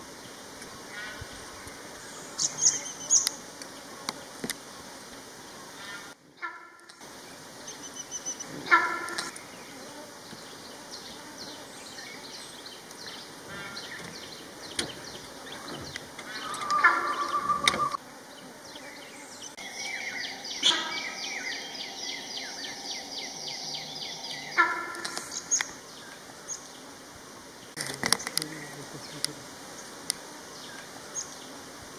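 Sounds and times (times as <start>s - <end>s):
birds calling and chirping: 0.2s - 4.3s, 5.7s - 26.9s.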